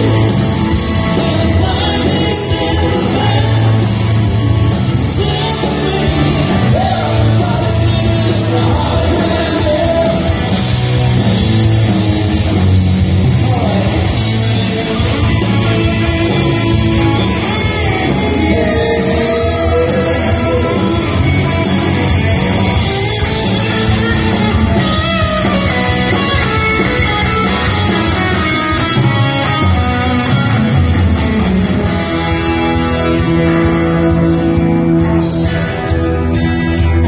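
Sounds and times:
male singer: 0:00.0 - 0:10.6, 0:13.3 - 0:16.5, 0:17.8 - 0:21.3
bass guitar: 0:00.0 - 0:37.0
drums: 0:00.0 - 0:37.0
electric guitars: 0:00.0 - 0:37.0.

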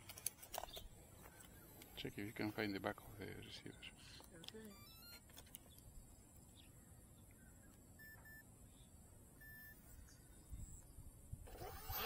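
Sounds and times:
faint electronic beeps: 0:04.6 - 0:05.3, 0:07.3 - 0:10.9.

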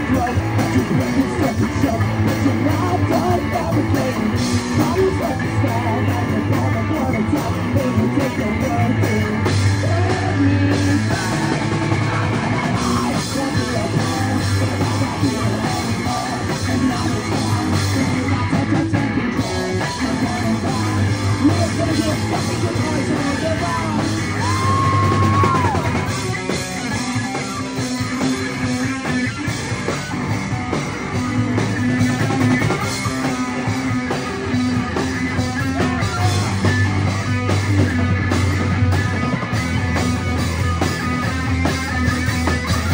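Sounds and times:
person singing into a microphone: 0:00.0 - 0:26.2, 0:32.8 - 0:37.5
bass guitar: 0:00.0 - 0:42.9
drum kit: 0:00.0 - 0:42.9
electric guitar: 0:00.0 - 0:42.9.

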